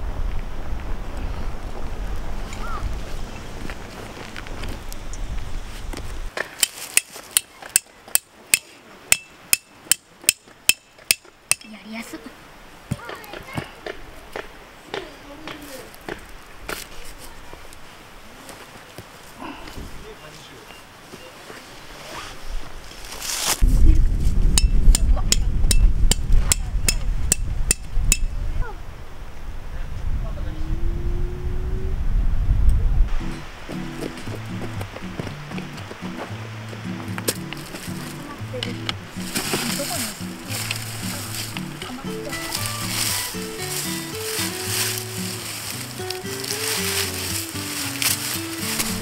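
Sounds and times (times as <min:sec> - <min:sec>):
hammer striking tent peg: 0:06.4 - 0:11.7, 0:24.6 - 0:28.3
low rumble: 0:23.6 - 0:33.2.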